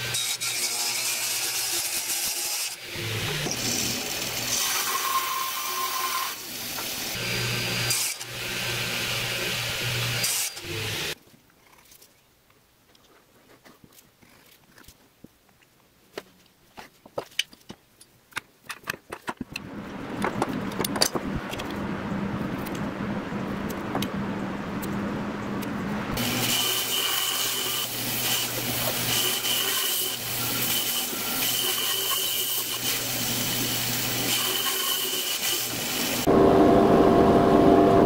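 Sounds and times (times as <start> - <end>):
wooden blocks clicking and tapping: 15.5 - 19.6
bandsaw cutting wood: 26.2 - 36.4.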